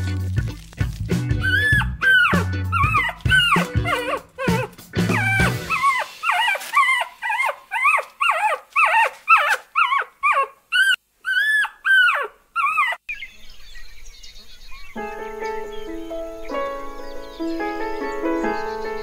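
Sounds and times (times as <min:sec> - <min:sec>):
background music: 0:00.0 - 0:06.7, 0:15.0 - 0:19.0
bear cub whining calls: 0:01.3 - 0:13.1.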